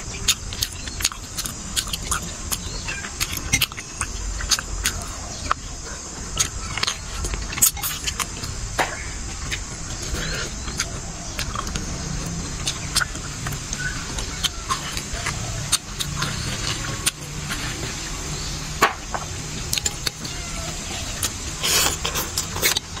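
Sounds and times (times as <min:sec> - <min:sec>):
wet chewing and lip smacks: 0:00.0 - 0:08.6, 0:09.3 - 0:17.9.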